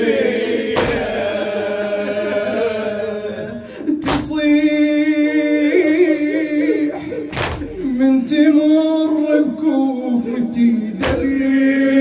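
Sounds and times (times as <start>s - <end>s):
sharp knock: 0.8s - 1.1s
man chanting: 4.0s - 12.0s.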